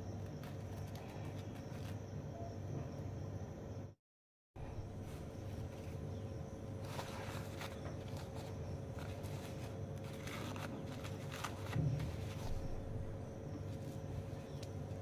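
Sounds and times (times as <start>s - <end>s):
steady low hum: 0.0s - 4.0s, 4.6s - 15.0s
paper towel rustling: 6.7s - 15.0s.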